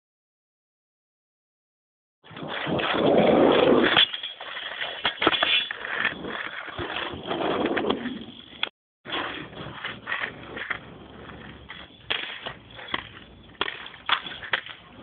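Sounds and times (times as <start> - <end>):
skateboard wheels rolling on asphalt: 2.2 - 15.0
skateboard clacks: 2.4 - 15.0.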